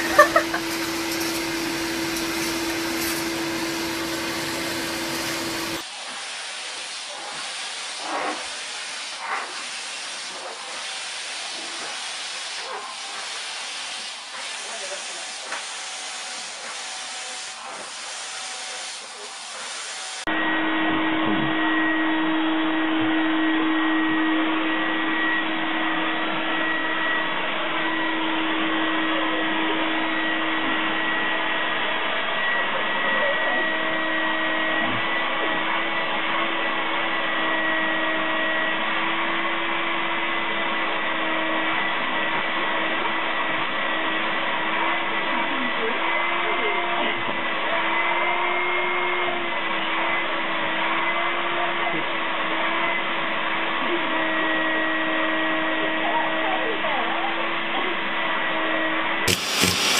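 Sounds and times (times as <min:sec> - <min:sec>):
vacuum cleaner running: 0:00.0 - 0:59.9
steady rushing hiss: 0:59.3 - 0:59.9.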